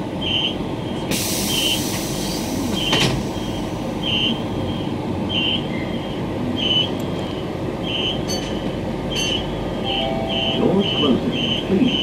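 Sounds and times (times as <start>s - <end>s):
train electric hum: 0.0s - 12.0s
short high electronic beeps: 9.9s - 11.6s.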